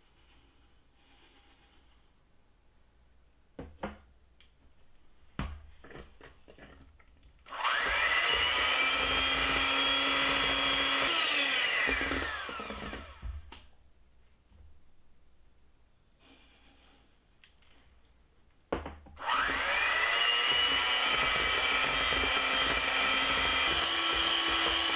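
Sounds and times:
electric hand mixer whining: 0:07.5 - 0:13.5, 0:19.2 - 0:24.9
knocks: 0:18.7 - 0:19.2.

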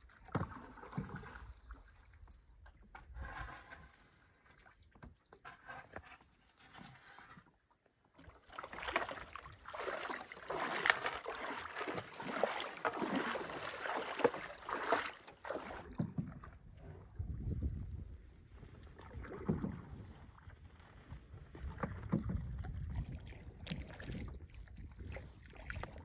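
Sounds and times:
water splashing and sloshing: 0:00.0 - 0:26.0.

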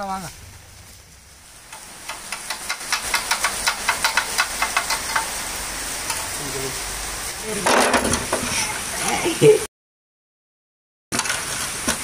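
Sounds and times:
rain falling: 0:00.0 - 0:09.7, 0:11.2 - 0:12.0.

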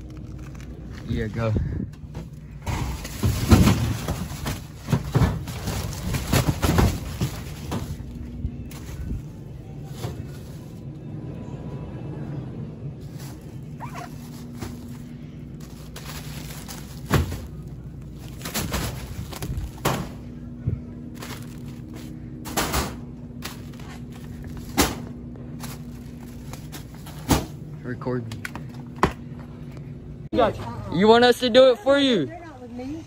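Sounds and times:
steady low hum: 0:00.0 - 0:33.0
packs dropping on floor: 0:03.0 - 0:09.1, 0:13.2 - 0:20.3
plastic wrap rustling: 0:03.0 - 0:10.8, 0:13.0 - 0:20.2, 0:21.1 - 0:27.3.

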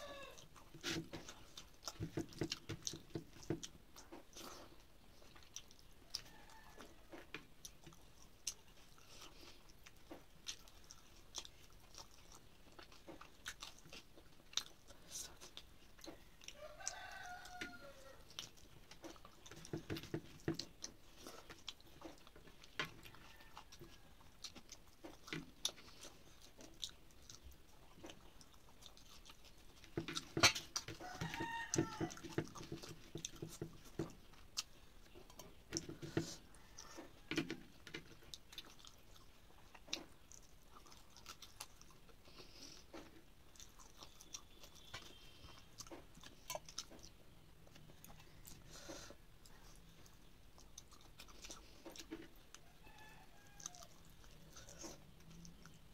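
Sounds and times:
person chewing: 0:00.0 - 0:55.9
fingers mixing rice on plate: 0:28.0 - 0:41.8.

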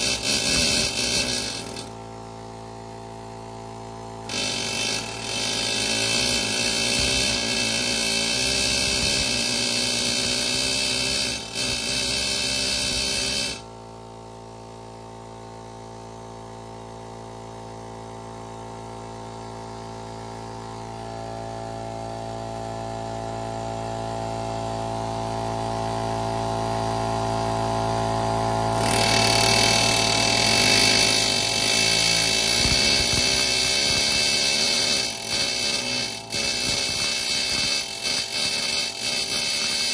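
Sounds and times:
pneumatic air chisel hammering: 0:00.0 - 0:02.6, 0:04.2 - 0:13.8, 0:27.4 - 0:39.9
air compressor humming: 0:00.0 - 0:17.6, 0:18.2 - 0:39.9.

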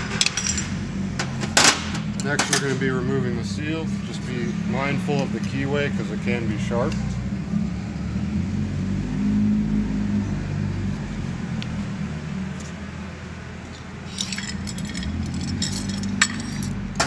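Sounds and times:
hand tools clinking and rattling: 0:00.0 - 0:02.8, 0:13.6 - 0:17.0
low background hum: 0:12.5 - 0:17.0.

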